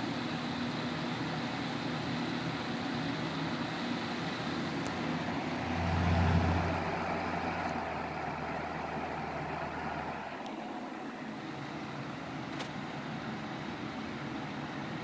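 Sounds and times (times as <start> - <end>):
box fan rushing air: 0.0 - 15.0
low hum: 5.3 - 8.1.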